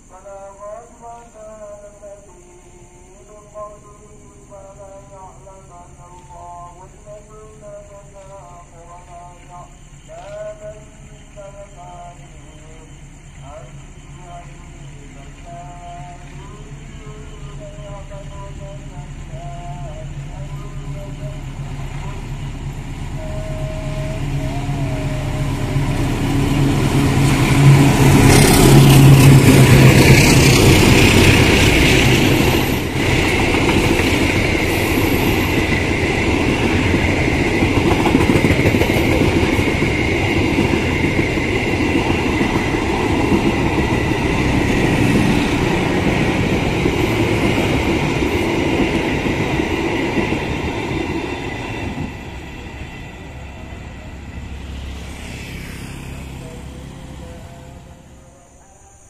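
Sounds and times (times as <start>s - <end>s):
diesel locomotive engine: 0.0s - 59.0s
train coaches rumbling over rails: 0.0s - 59.0s
steady high tone: 16.5s - 33.0s, 37.7s - 59.0s.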